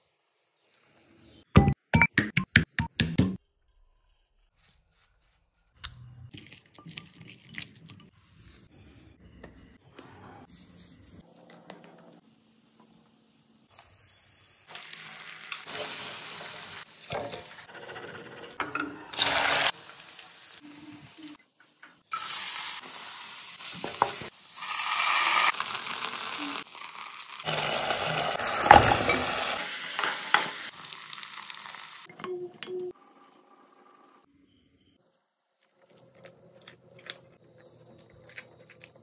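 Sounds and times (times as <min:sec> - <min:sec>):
food sizzling in hot oil: 0:13.8 - 0:17.6, 0:19.1 - 0:21.3, 0:22.1 - 0:32.1.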